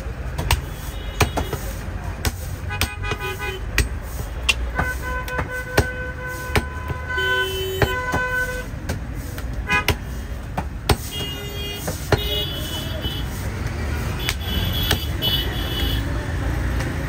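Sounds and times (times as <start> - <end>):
cleaver chopping meat on wood: 0.3 - 7.1, 7.8 - 11.2, 13.6 - 15.2
vehicle horns: 0.5 - 1.9, 2.6 - 8.8, 9.6 - 10.0, 11.0 - 16.2.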